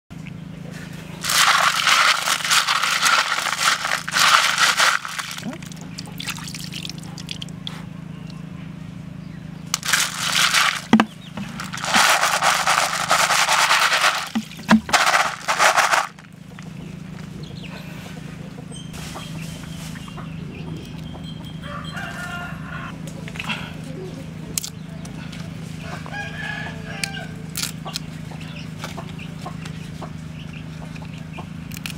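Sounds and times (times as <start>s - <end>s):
clam shells clattering: 1.2s - 5.7s, 9.8s - 16.3s.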